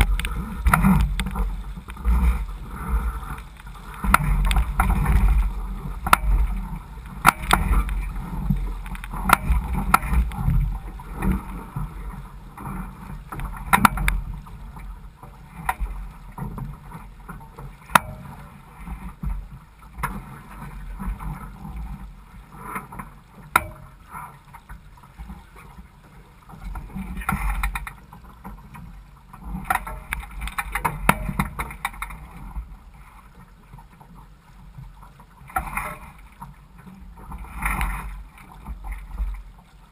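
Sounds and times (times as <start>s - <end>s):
sharp clicks and knocks: 0.0s - 2.2s, 3.3s - 10.6s, 13.4s - 14.2s, 29.6s - 32.2s
wind rumble on microphone: 0.0s - 25.5s
water lapping on boat hull: 0.0s - 39.9s.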